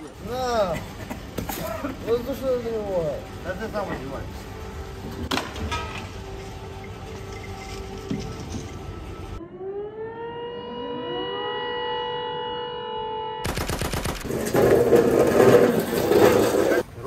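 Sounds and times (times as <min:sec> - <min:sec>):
air-raid siren winding up: 0:09.1 - 0:13.5.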